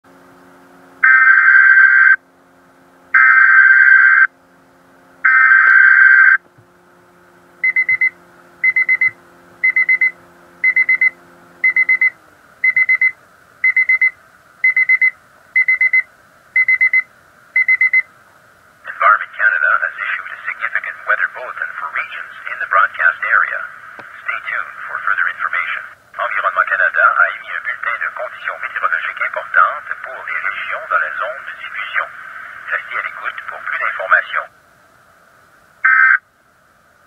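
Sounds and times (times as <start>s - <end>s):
buzzy data bursts: 7.6s - 16.0s
quick high alarm beeps: 7.6s - 18.1s.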